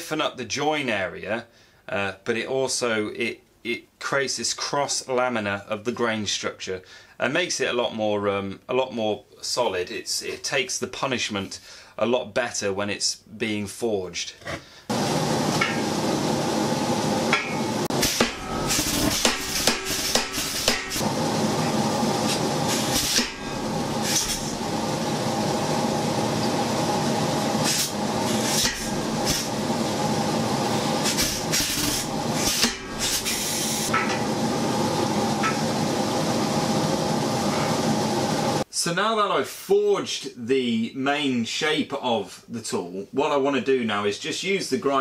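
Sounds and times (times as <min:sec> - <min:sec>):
power hammer striking hot steel: 0:15.5 - 0:16.2, 0:17.3 - 0:24.8, 0:27.6 - 0:29.7, 0:31.0 - 0:34.3, 0:35.4 - 0:35.7.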